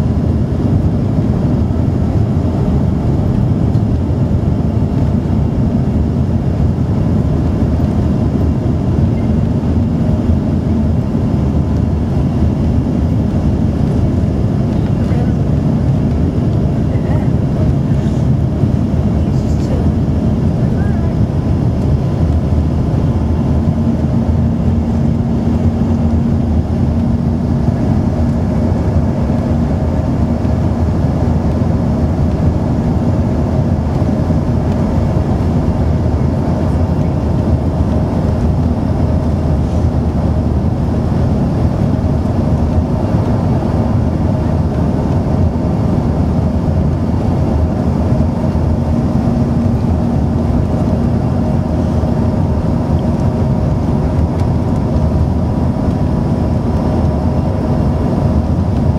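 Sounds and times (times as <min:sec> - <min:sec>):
aircraft engines droning: 0:00.0 - 0:58.9
low hum: 0:00.0 - 0:58.9.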